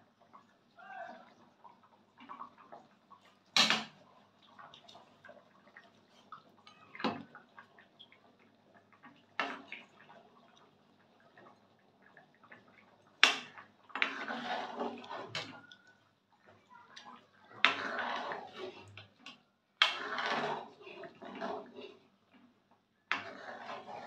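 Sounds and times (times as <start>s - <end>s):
wet stirring: 1.2s - 24.0s.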